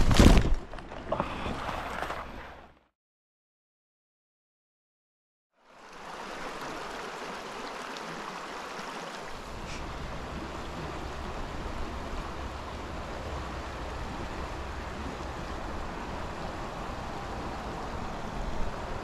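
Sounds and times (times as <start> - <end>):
water flowing in creek: 0.4 - 2.7, 5.5 - 19.0
wind rumble on microphone: 9.4 - 19.0.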